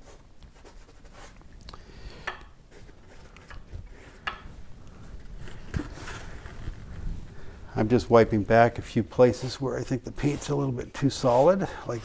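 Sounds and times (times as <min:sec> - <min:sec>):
paintbrush scraping on canvas: 0:08.7 - 0:12.0.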